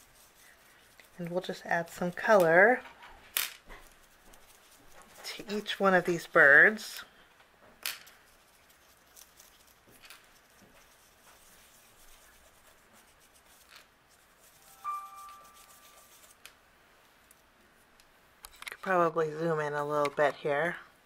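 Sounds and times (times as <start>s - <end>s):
brush dabbing on paper: 0.0s - 2.9s, 3.7s - 6.9s, 8.2s - 16.5s
steady high tone: 14.6s - 16.3s.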